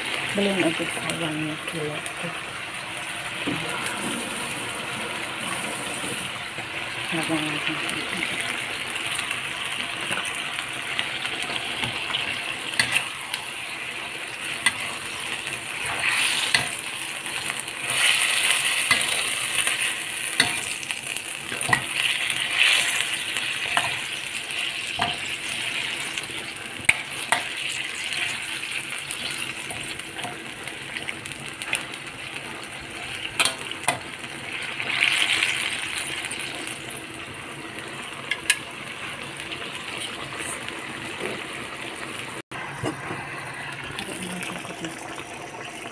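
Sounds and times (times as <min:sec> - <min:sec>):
chicken sizzling in sauce: 0:00.0 - 0:45.9
spatula scraping a pan: 0:14.4 - 0:20.8.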